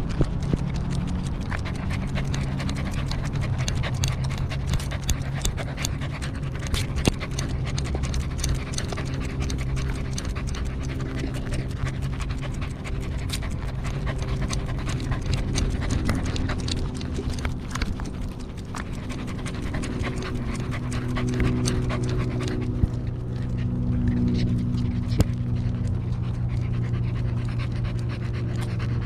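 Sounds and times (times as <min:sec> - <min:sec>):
dog panting: 0:00.0 - 0:29.0
low steady hum: 0:00.0 - 0:29.0.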